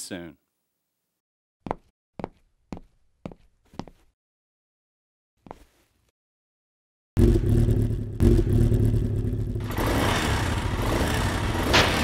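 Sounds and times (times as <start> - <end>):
motorcycle engine revving: 7.2 - 12.0.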